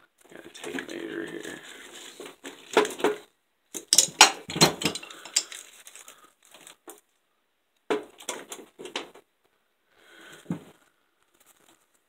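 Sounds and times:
metal hand tools clinking: 0:03.8 - 0:05.7.

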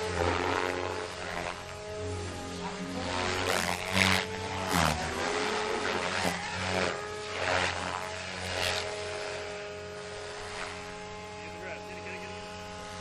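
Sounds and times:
rc helicopter rotor and motor drone: 0:00.0 - 0:13.0.

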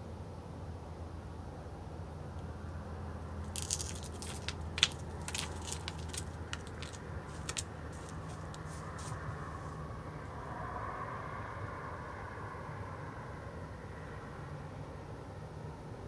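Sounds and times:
deer crunching and clicking: 0:03.5 - 0:09.4.

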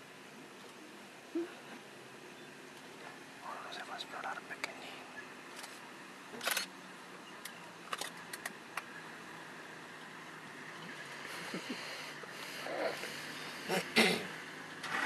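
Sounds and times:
faint low hum: 0:00.0 - 0:14.8.

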